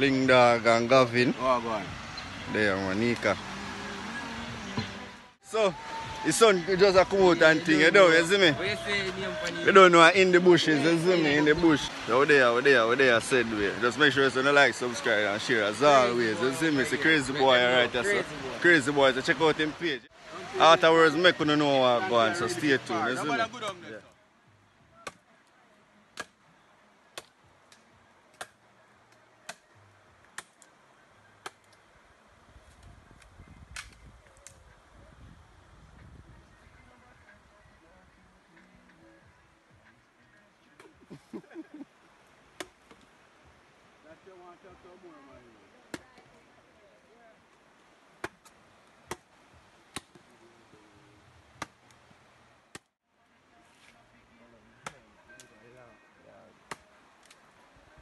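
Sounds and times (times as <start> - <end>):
machete chopping wood: 49.9 - 50.2.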